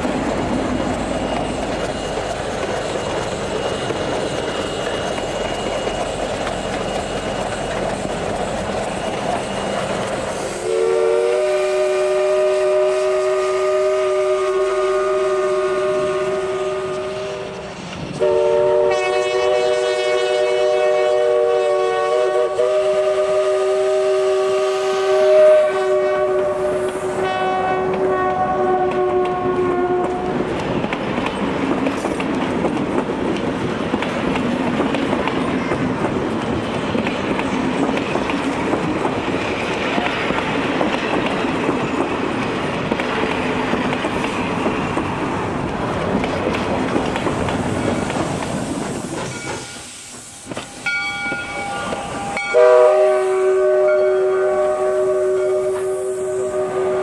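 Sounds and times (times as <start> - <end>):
carriages rumbling on rails: 0.0 - 57.0
steam locomotive whistle: 9.4 - 30.4, 49.3 - 57.0.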